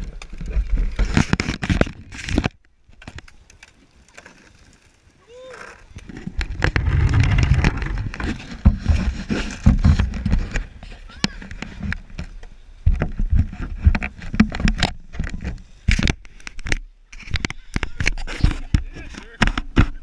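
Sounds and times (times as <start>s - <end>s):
camera handling knocks and scraping: 6.0s - 20.0s
low rumble: 6.4s - 8.7s.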